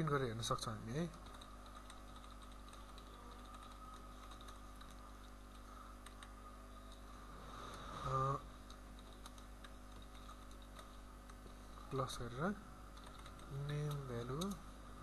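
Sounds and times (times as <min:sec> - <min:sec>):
typing on a keyboard: 0:01.1 - 0:07.0, 0:08.6 - 0:11.0, 0:13.0 - 0:14.6.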